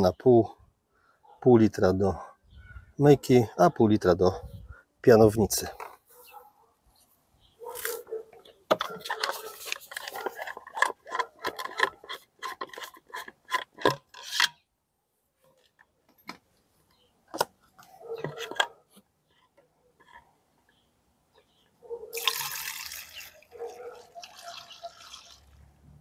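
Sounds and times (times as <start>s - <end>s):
containers clicking and knocking: 8.6s - 14.6s, 18.2s - 18.8s, 22.1s - 25.6s.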